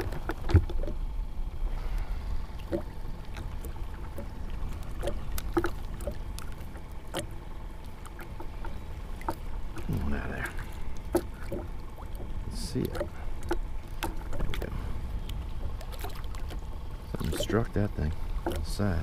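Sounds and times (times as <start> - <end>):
clicks and knocks handling fish: 0.0 - 1.1, 1.9 - 19.0
low wind rumble: 0.0 - 19.0
water lapping against kayak: 0.0 - 19.0.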